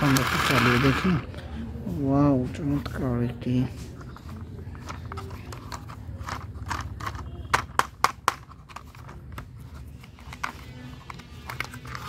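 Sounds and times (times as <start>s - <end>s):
plastic toy car clicks and knocks: 0.0s - 1.2s, 4.3s - 12.0s.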